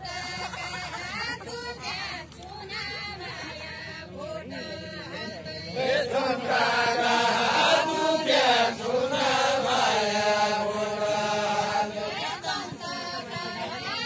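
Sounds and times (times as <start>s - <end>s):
men singing folk song: 2.8s - 14.0s.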